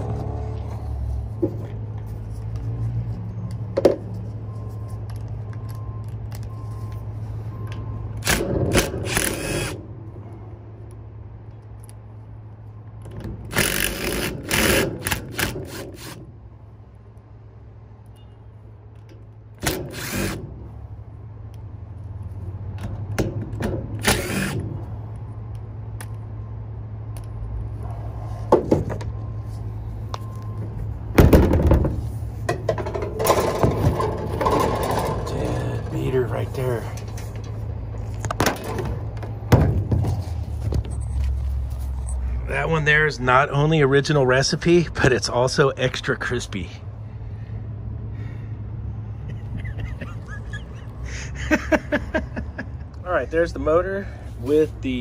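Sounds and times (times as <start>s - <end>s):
cordless drill spinning nuts: 13.5s - 16.2s, 19.6s - 20.4s, 24.0s - 24.6s.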